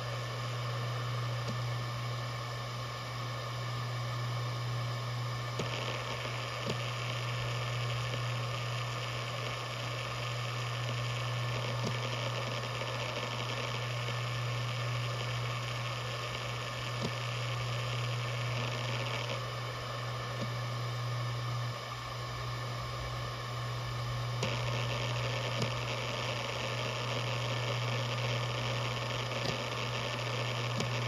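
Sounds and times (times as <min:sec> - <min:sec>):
hard drive spinning buzz: 0:00.0 - 0:31.0
hard drive head ticks: 0:05.5 - 0:05.9, 0:16.9 - 0:17.3, 0:25.5 - 0:25.9, 0:29.3 - 0:29.9, 0:30.5 - 0:31.0.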